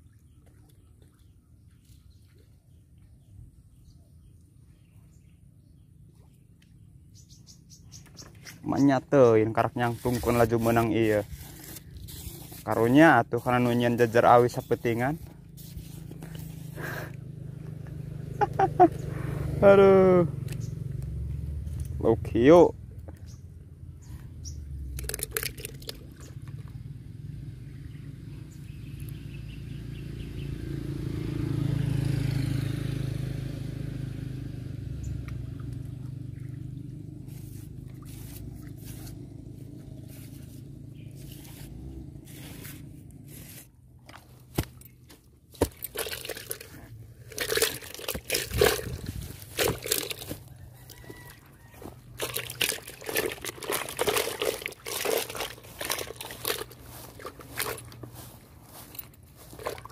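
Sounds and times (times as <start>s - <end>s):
fishing rod handling rustles: 9.8s - 17.0s, 25.0s - 26.6s, 37.3s - 59.9s
passing vehicle rumble: 14.0s - 44.4s, 46.4s - 59.9s
footsteps on grass: 37.2s - 44.8s, 47.5s - 59.9s.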